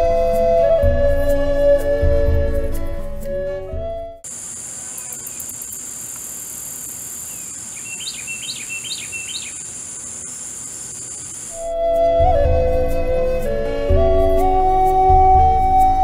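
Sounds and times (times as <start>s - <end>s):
songbird singing: 3.8s - 16.0s
insects droning: 4.2s - 11.8s.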